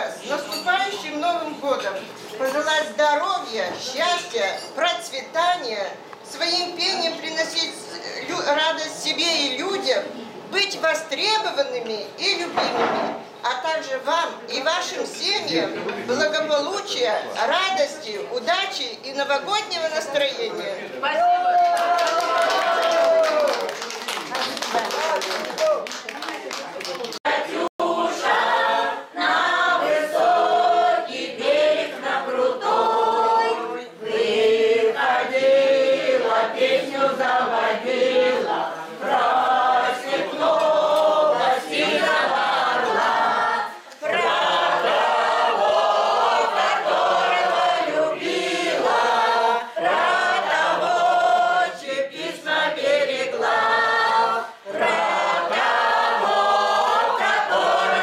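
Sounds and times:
choir singing: 27.3 - 58.0.

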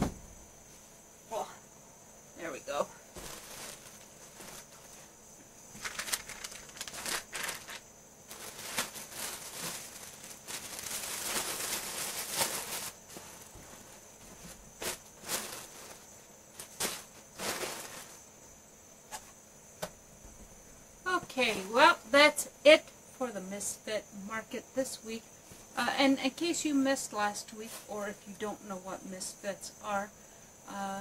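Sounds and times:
packaging rustling and crinkling: 3.1 - 5.1, 5.7 - 18.2.

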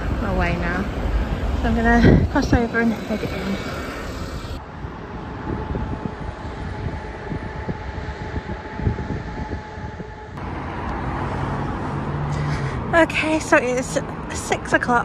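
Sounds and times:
faint steady whine: 0.0 - 10.4
traffic rumble: 0.0 - 15.0.

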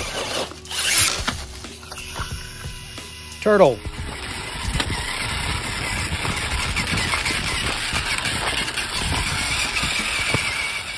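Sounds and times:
tyres scraping on rock: 0.0 - 2.8, 3.8 - 10.9
electric motor whining: 0.0 - 10.9.

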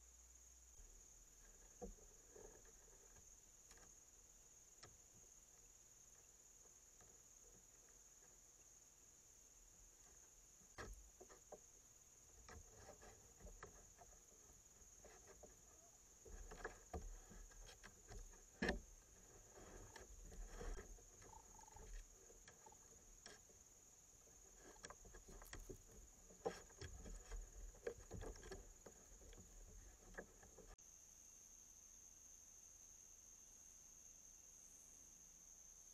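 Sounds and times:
high insect drone: 0.0 - 35.9.

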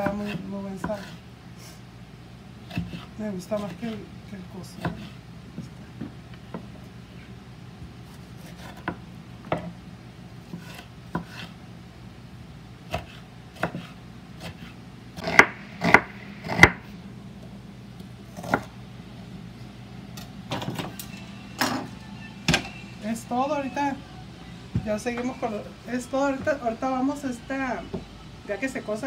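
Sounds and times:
knife chopping on wooden board: 2.7 - 3.7, 10.5 - 11.5, 12.9 - 16.8, 18.3 - 18.7.

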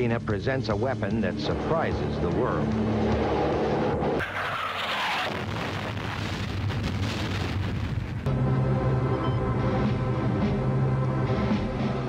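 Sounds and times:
explosion blast: 4.2 - 8.3
low music drone: 8.2 - 12.0.

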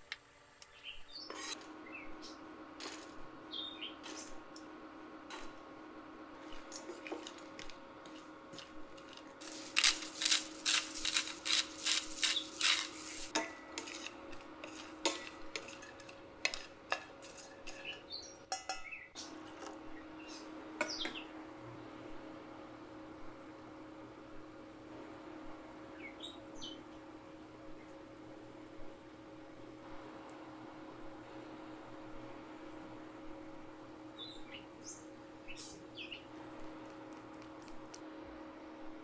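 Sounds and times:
faint steady hum: 0.0 - 39.0
wooden spatula scraping metal pan: 1.2 - 1.6, 9.0 - 18.1.

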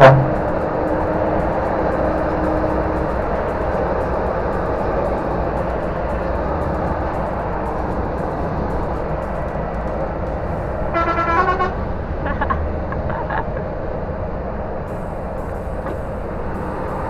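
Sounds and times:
vehicle horn: 0.0 - 0.4, 10.9 - 11.8
road noise: 0.0 - 17.0
truck engine drone: 0.0 - 17.0.

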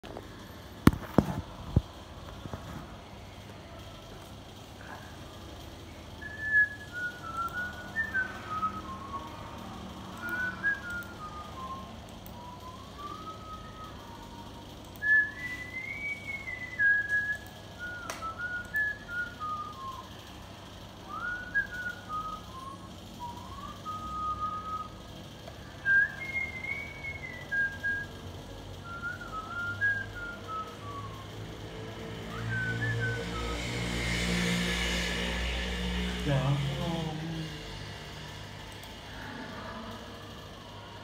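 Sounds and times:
man whistling a tune: 6.2 - 14.4, 15.0 - 20.1, 21.0 - 25.0, 25.8 - 28.2, 28.8 - 31.4, 32.3 - 33.7.

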